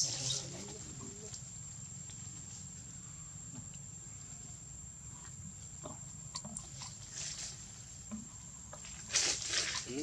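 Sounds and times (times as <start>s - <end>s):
leaves rustling: 0.0s - 3.1s, 6.6s - 8.1s, 8.7s - 10.0s
branches clicking and snapping: 8.8s - 10.0s.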